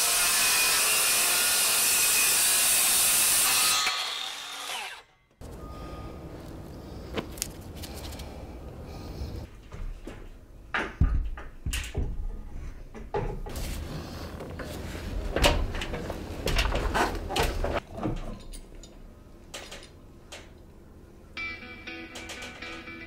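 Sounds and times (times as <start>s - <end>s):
wooden plank knocks and clunks: 10.7s - 13.5s.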